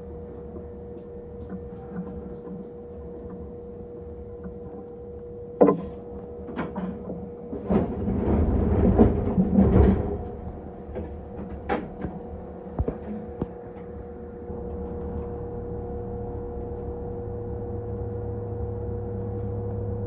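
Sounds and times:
electric train humming: 0:00.0 - 0:20.0
clunks and knocks: 0:05.6 - 0:15.6.

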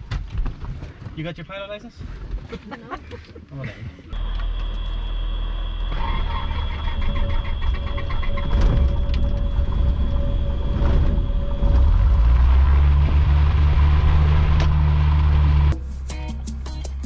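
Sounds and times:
propeller plane engine rumble: 0:04.2 - 0:17.0.

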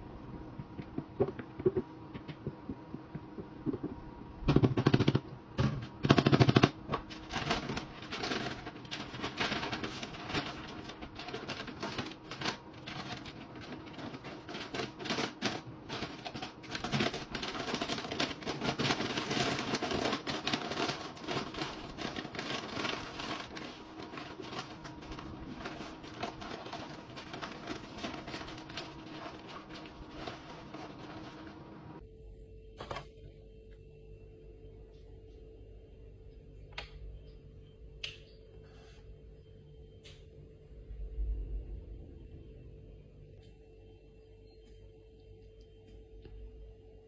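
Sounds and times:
paper crinkling and rustling: 0:04.6 - 0:32.0.

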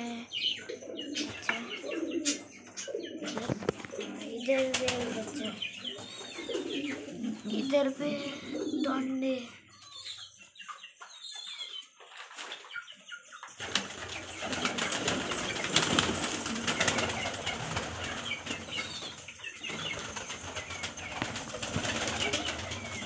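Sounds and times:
pigeon wings flapping: 0:03.3 - 0:05.5, 0:13.6 - 0:23.0.

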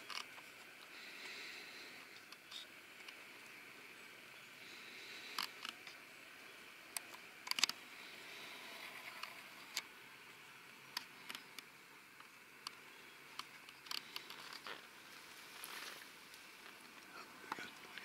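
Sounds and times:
faint steady hiss: 0:00.0 - 0:18.0.

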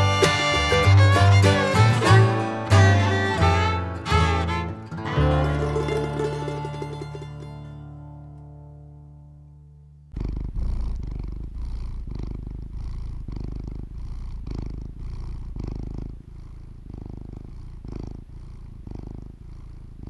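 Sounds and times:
cat purring: 0:10.0 - 0:20.0.

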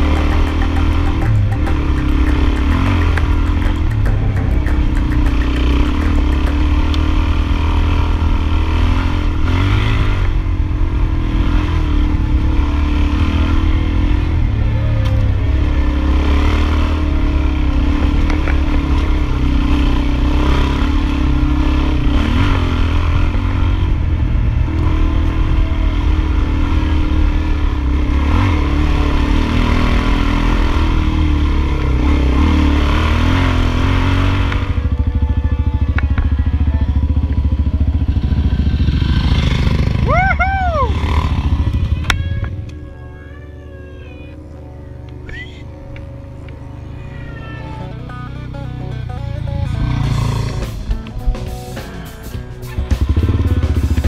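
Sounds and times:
motorcycle engine droning: 0:00.0 - 0:54.0.

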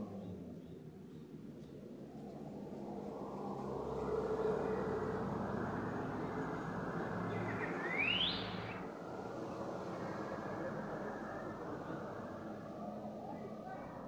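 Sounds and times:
street traffic rush: 0:00.0 - 0:14.0
sharply rising whistle: 0:07.6 - 0:08.8.

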